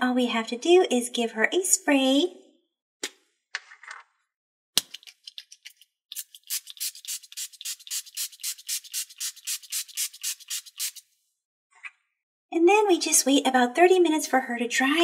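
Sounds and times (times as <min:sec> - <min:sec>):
spray bottle hissing spritzes: 0:06.1 - 0:11.1.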